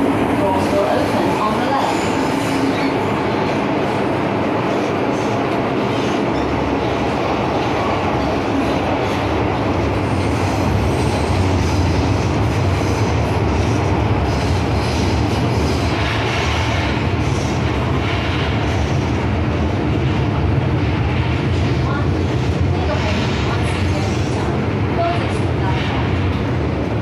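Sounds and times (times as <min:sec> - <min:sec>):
train wheels rumbling on rail: 0:00.0 - 0:27.0.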